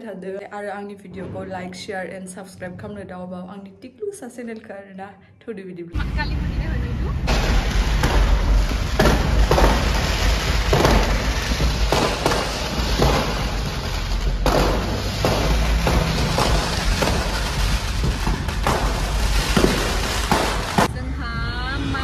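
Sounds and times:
fireworks banging and crackling: 0:06.0 - 0:21.0
deep rumble: 0:06.0 - 0:22.0.

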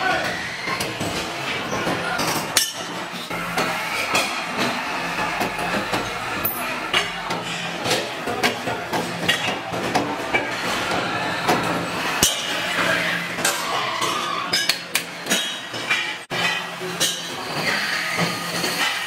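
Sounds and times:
machine tools humming: 0:00.3 - 0:13.5.

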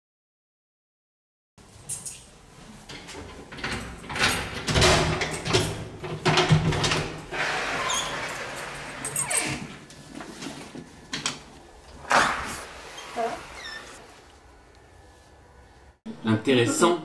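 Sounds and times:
door knocks and rattles: 0:03.4 - 0:07.2
door squeak: 0:07.4 - 0:09.7, 0:12.0 - 0:14.1.

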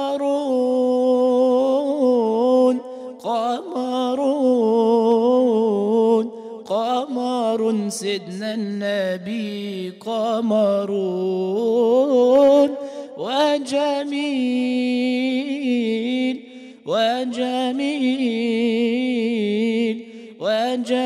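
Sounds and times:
man singing devotional song: 0:00.0 - 0:21.0
singer breathing: 0:02.9 - 0:03.2, 0:06.3 - 0:06.6, 0:12.8 - 0:13.2, 0:16.4 - 0:16.9, 0:20.0 - 0:20.4.

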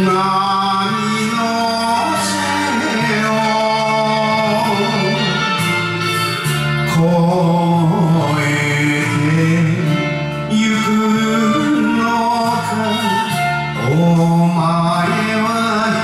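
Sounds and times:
karaoke backing track: 0:00.0 - 0:16.0
man singing a ballad: 0:00.0 - 0:16.0.

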